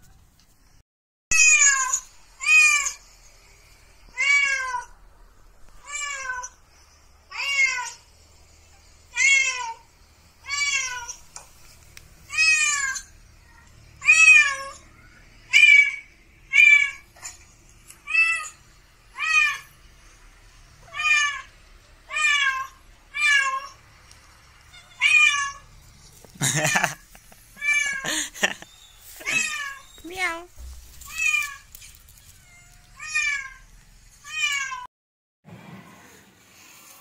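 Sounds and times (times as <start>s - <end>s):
recorded cat meows from phone: 1.3s - 3.0s.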